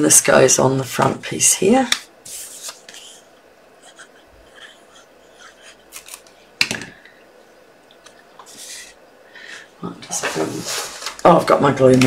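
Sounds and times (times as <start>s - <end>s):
paper rustling: 1.9s - 3.2s, 5.9s - 6.4s, 10.1s - 12.0s.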